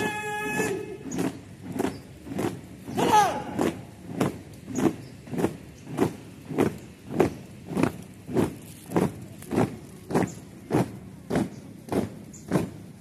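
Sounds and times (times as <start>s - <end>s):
marching footsteps on paving: 0.0s - 13.0s.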